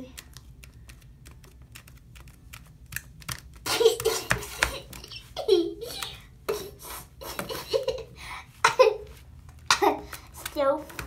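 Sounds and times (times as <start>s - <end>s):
person laughing: 3.6s - 10.1s.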